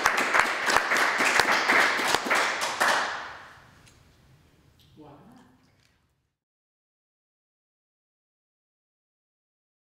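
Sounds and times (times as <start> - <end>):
applause: 0.0 - 3.5
individual hand claps: 0.0 - 3.5.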